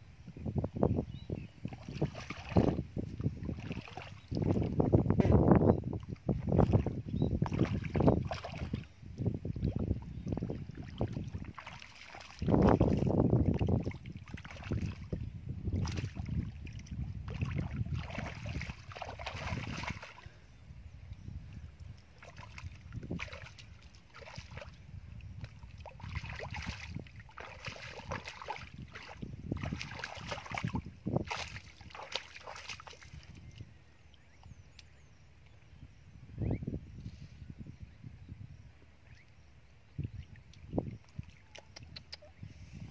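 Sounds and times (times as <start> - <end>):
hands squelching in mud: 10.8 - 15.0, 25.4 - 33.2.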